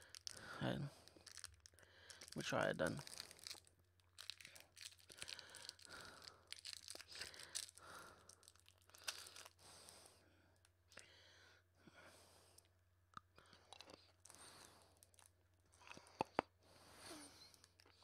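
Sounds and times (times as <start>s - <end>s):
plastic wrapper crinkling: 0.0s - 9.6s.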